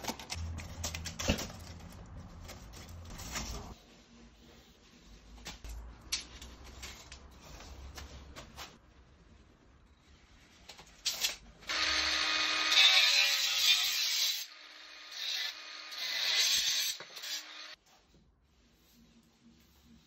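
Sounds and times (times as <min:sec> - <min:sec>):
angle grinder cutting metal: 0:11.7 - 0:17.8.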